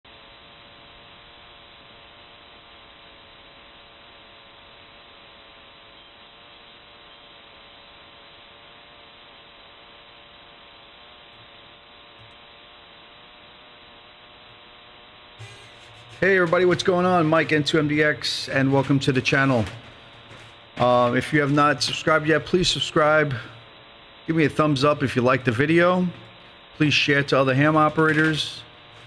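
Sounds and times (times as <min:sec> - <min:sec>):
radio receiver hiss: 0:00.2 - 0:29.0
faint steady radio tones: 0:01.6 - 0:29.0.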